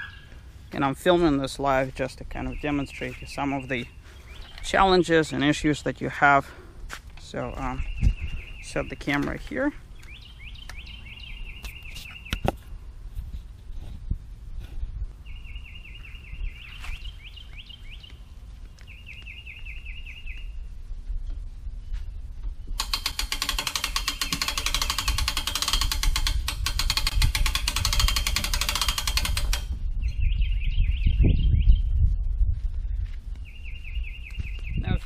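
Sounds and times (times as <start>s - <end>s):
bird chirping: 2.2s - 5.7s, 7.3s - 12.6s, 15.2s - 20.7s, 29.9s - 32.0s, 33.4s - 35.0s
hand-cranked winch ratcheting: 22.8s - 29.7s.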